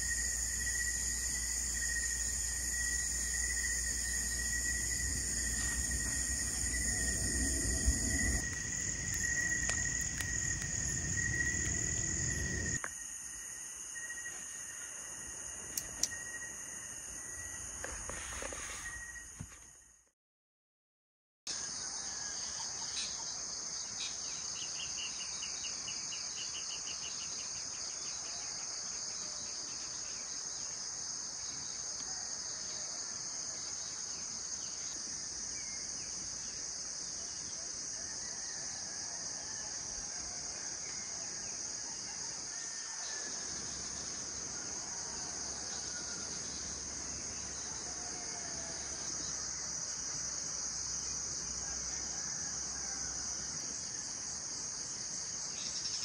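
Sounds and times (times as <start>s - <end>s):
pulsing insect trill: 0.0s - 19.8s
crickets and insects chirping: 0.0s - 20.0s, 21.5s - 56.0s.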